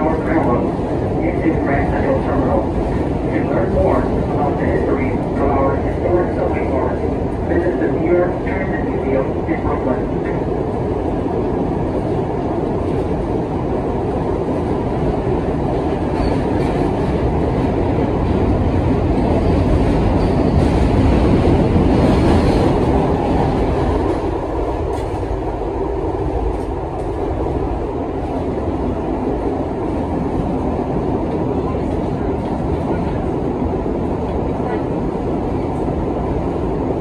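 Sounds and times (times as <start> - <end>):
subway car rumbling on rails: 0.0 - 37.0.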